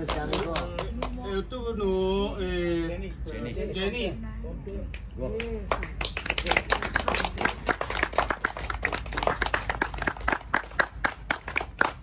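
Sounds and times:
rapid sharp claps: 0:00.0 - 0:01.2, 0:04.9 - 0:12.0.

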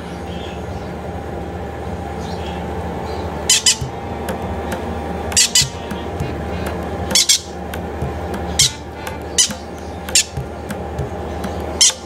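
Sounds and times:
parrot chick squawking: 0:03.5 - 0:03.9, 0:05.4 - 0:07.5.

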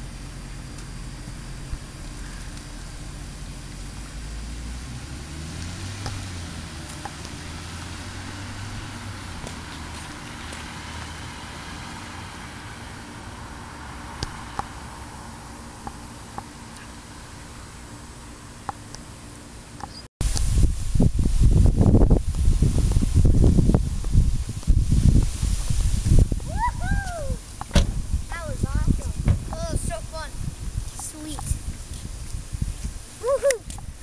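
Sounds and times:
car engine accelerating away: 0:00.0 - 0:18.7.

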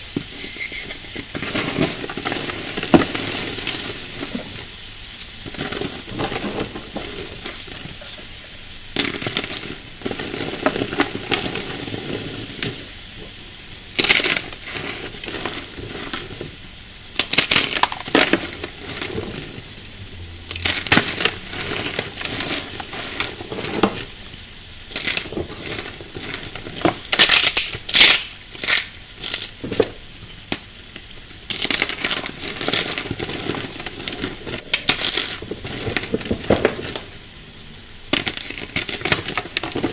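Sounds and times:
chalk crunches: 0:00.0 - 0:08.4, 0:14.0 - 0:29.8, 0:38.1 - 0:39.9
chalk crumbling hiss: 0:00.0 - 0:39.9.

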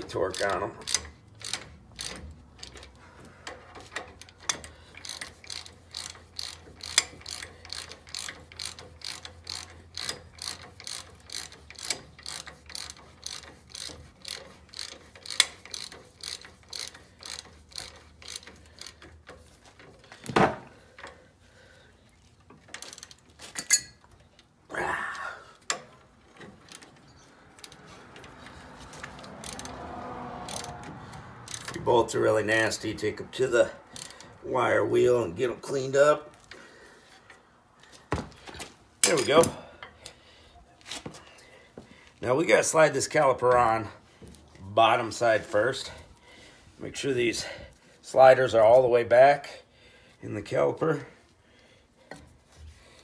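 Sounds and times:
ratchet wrench clicking: 0:00.0 - 0:20.1, 0:22.6 - 0:24.1, 0:25.6 - 0:33.1, 0:33.9 - 0:34.4.

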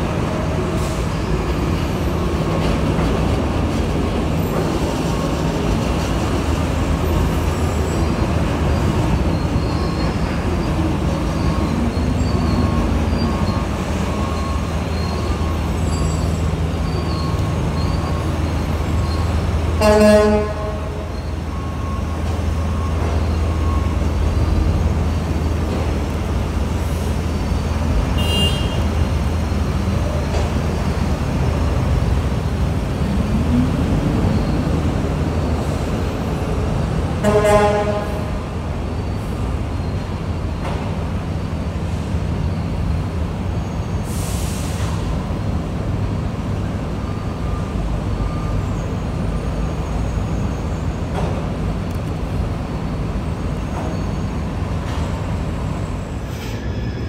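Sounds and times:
train wheels rumbling on rail: 0:00.0 - 0:57.0
train horn toot: 0:19.8 - 0:21.1, 0:28.2 - 0:28.9, 0:37.2 - 0:38.4.

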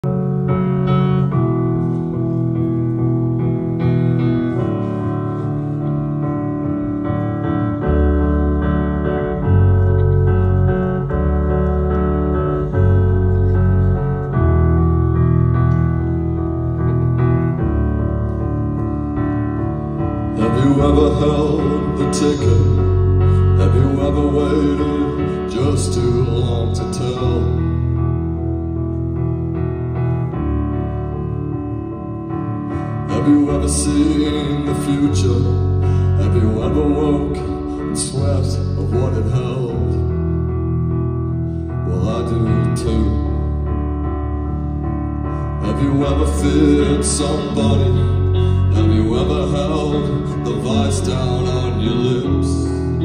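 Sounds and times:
keyboard chords: 0:00.0 - 0:53.0
low bass notes: 0:00.0 - 0:53.0.

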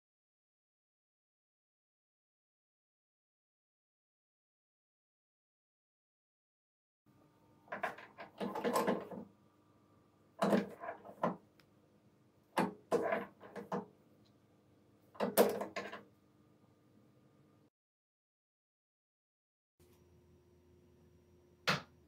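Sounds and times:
faint steady hum: 0:07.1 - 0:10.4, 0:13.9 - 0:17.7, 0:19.8 - 0:22.0.

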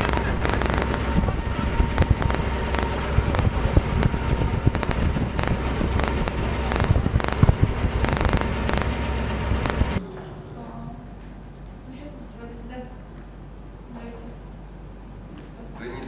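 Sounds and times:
faint steady whine: 0:00.0 - 0:10.0
sharp crackles: 0:00.0 - 0:10.0
wind buffeting microphone: 0:00.1 - 0:08.8.

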